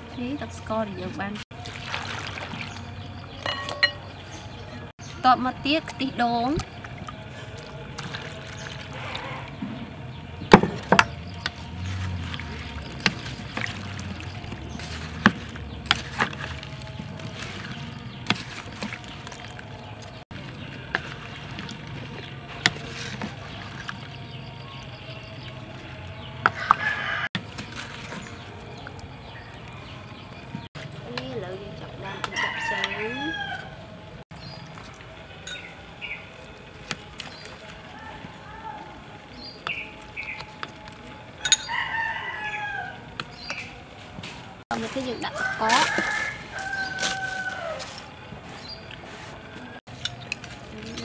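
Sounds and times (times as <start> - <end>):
spoon knocking metal bowl: 3.4 - 4.1
spoons clinking against bowls: 3.4 - 4.2, 41.4 - 42.0
moist fruit pieces shifting: 10.4 - 30.6, 44.7 - 51.0
rooster crowing: 26.4 - 27.4, 32.0 - 33.9, 41.4 - 43.2, 45.2 - 48.1.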